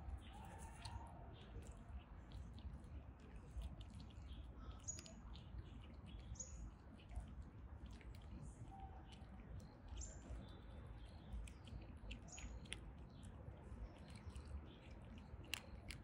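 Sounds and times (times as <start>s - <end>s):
cats crunching dry kibble: 0.0s - 16.0s
bird chirping: 4.0s - 7.2s, 8.6s - 16.0s.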